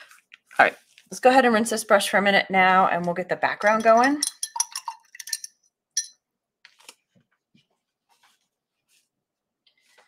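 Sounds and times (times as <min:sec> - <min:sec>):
paintbrush rinsed in water cup: 0:03.6 - 0:05.2.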